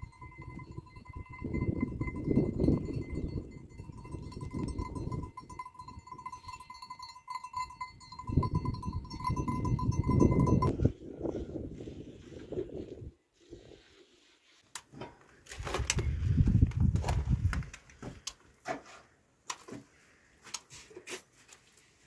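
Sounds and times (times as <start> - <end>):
wind rumbling on microphone: 0.0 - 5.6, 8.2 - 13.8, 15.6 - 17.9
faint steady high tone: 0.0 - 10.8.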